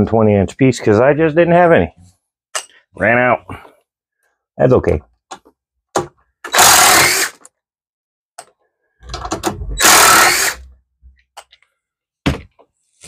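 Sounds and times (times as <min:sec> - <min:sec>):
low rumble: 0:09.0 - 0:09.9.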